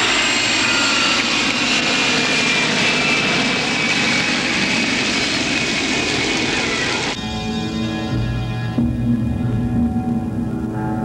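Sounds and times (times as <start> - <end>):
high whine falling in pitch: 6.4 - 11.0.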